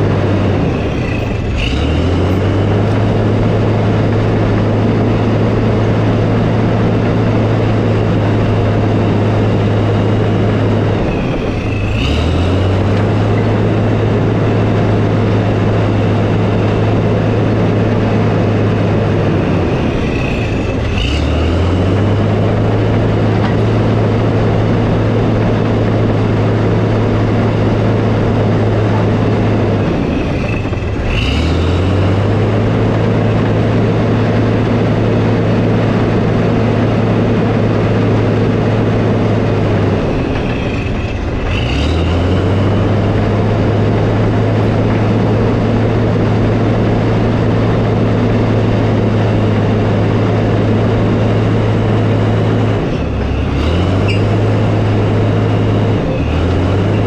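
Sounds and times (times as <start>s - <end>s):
diesel engine running: 0.0s - 57.0s
short high squeak: 54.0s - 54.4s.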